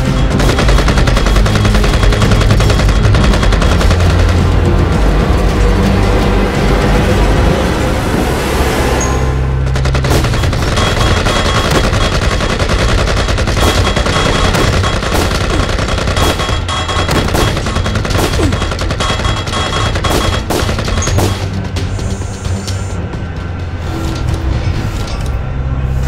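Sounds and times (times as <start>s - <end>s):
rapid gunfire: 0.0s - 5.0s, 9.7s - 22.6s.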